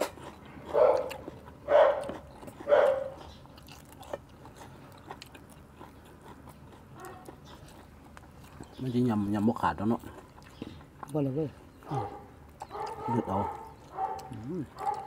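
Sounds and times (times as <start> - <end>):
people chewing: 0.0 - 15.0
dog barking: 0.7 - 3.2, 7.0 - 7.4, 11.8 - 15.0.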